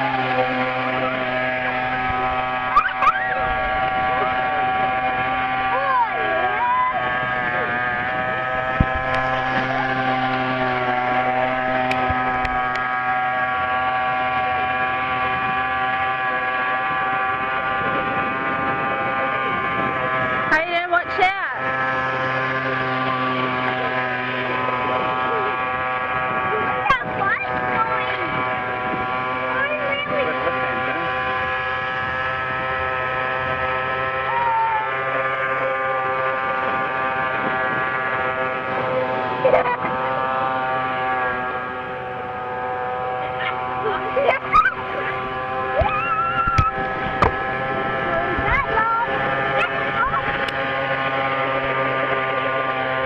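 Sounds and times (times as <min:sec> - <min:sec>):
two-stroke engine running steadily: 0:00.0 - 0:53.0.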